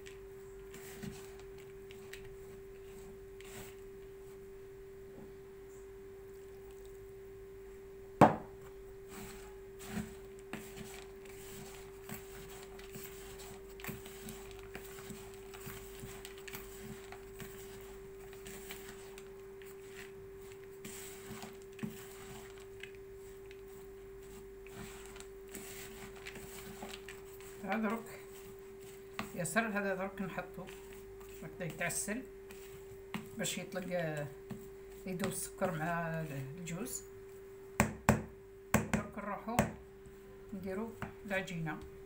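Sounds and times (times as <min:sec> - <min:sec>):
hands mixing nut filling: 0:00.0 - 0:04.4, 0:09.0 - 0:36.8
steady hum: 0:00.0 - 0:42.0.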